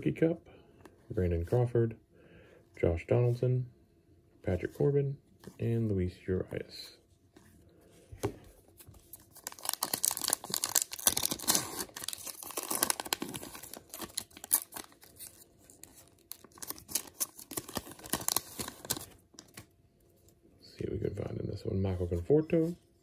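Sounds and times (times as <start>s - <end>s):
foil wrapper tearing and crinkling: 9.2s - 19.6s.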